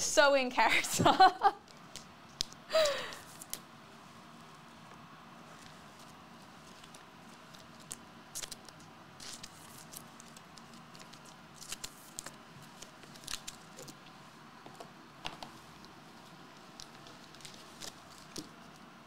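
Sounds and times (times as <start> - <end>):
trading cards and foil packs rustling: 5.6 - 14.2, 15.3 - 19.0.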